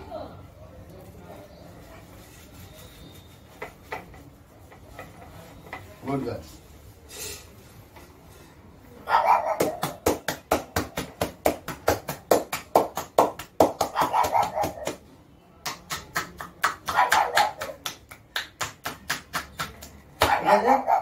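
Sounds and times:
hands patting dog's back: 0:09.6 - 0:15.0.

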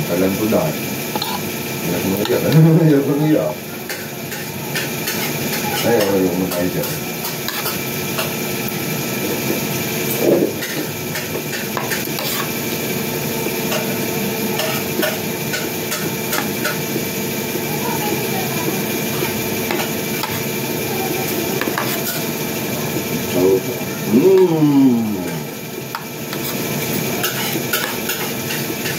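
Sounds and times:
spoon scraping ceramic bowl: 0:11.9 - 0:12.6.

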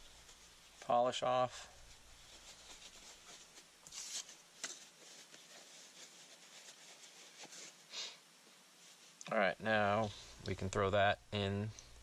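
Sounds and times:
paper towel rustling: 0:00.0 - 0:07.9.

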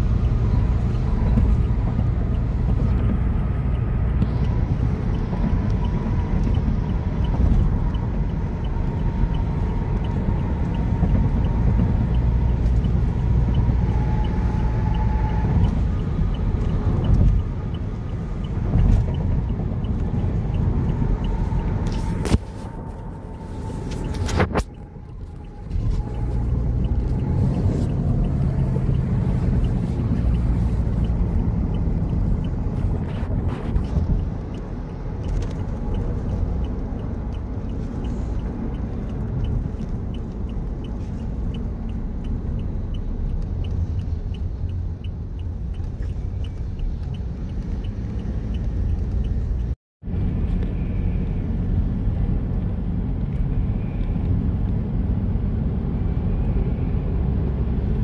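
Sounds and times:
car road and engine rumble: 0:00.0 - 0:58.0.

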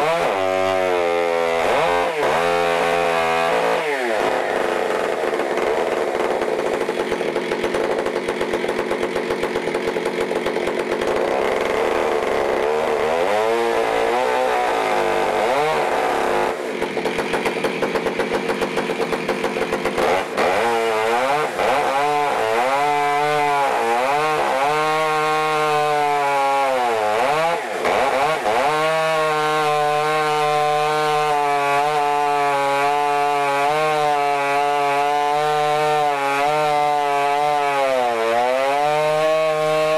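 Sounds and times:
chainsaw cutting through log: 0:00.0 - 0:39.9.

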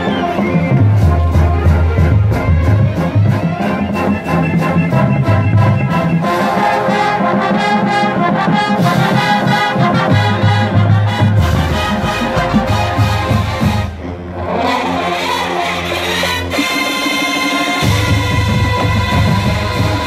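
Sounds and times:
brass section chords: 0:00.0 - 0:20.0
marching drumline beat: 0:07.4 - 0:14.0, 0:16.6 - 0:20.0.

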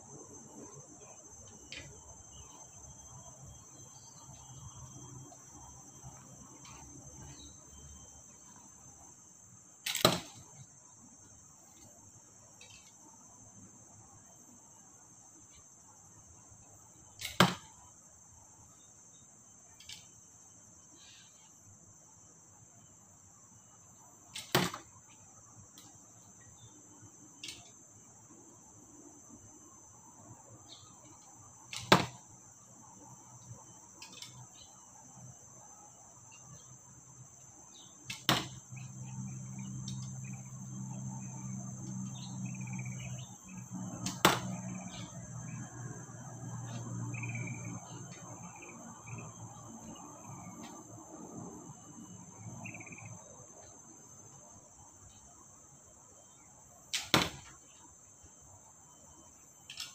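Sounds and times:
high insect buzz: 0:00.0 - 0:59.9
arrows thudding into target: 0:09.8 - 0:10.5, 0:17.2 - 0:17.7, 0:24.4 - 0:24.9, 0:31.7 - 0:32.2, 0:38.1 - 0:38.6, 0:44.0 - 0:45.1, 0:56.9 - 0:57.5.

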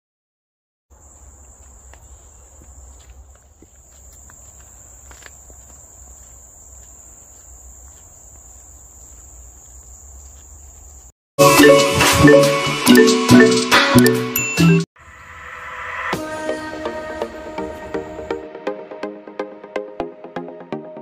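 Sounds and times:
insects droning: 0:00.9 - 0:11.1.

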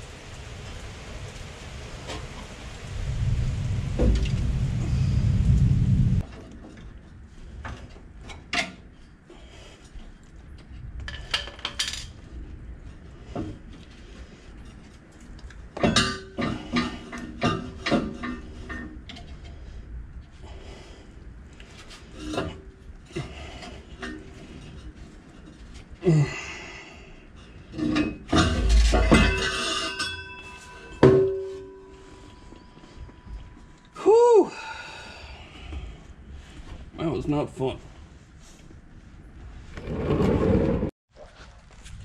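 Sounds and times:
metal clanks and knocks: 0:15.8 - 0:19.5, 0:27.7 - 0:32.9
metal scraping: 0:27.7 - 0:33.8.

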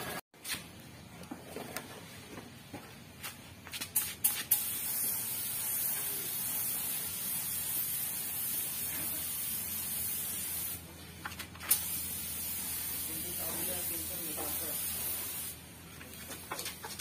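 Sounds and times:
spray gun trigger bursts: 0:03.9 - 0:10.8, 0:11.4 - 0:15.6
paint spray gun hissing: 0:04.0 - 0:10.9, 0:11.6 - 0:15.6.

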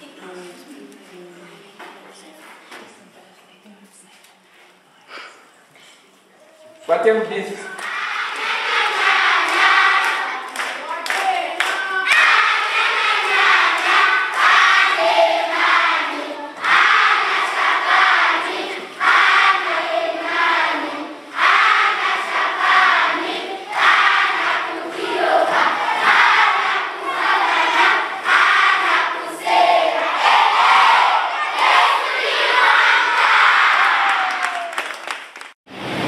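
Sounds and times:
children singing in unison: 0:07.6 - 0:34.1.

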